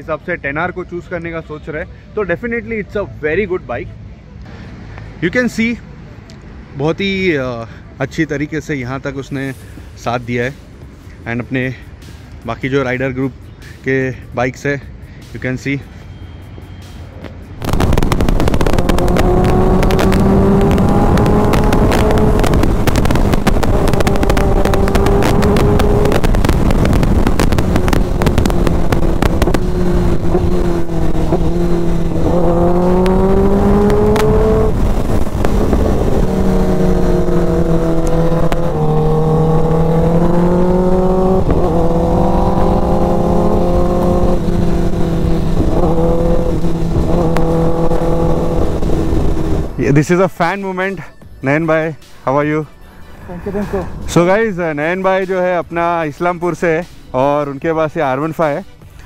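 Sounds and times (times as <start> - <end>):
motorcycle engine at speed: 17.6 - 49.8
wind rush on microphone: 17.6 - 49.8.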